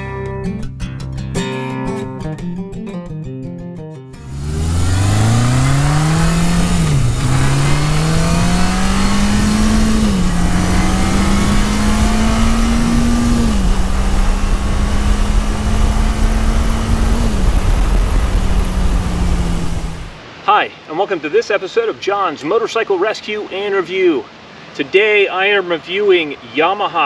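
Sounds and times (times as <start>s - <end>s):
motorcycle engine accelerating: 4.2s - 20.2s
wind rush: 4.3s - 20.4s.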